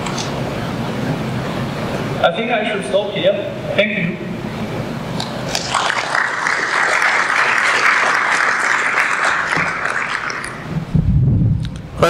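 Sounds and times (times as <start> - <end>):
audience applauding: 5.5 - 10.8.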